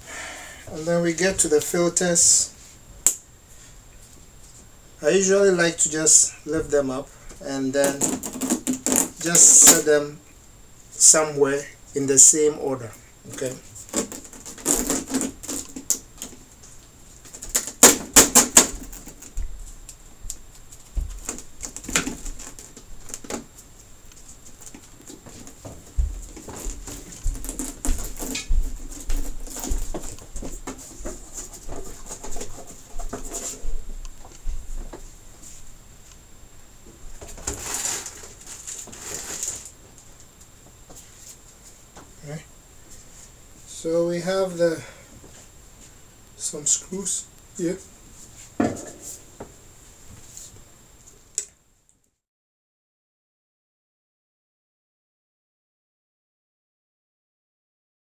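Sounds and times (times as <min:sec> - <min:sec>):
plastic sheet crackling: 0:13.4 - 0:16.0, 0:37.4 - 0:39.8
thin plastic sheets crinkling: 0:37.3 - 0:39.8.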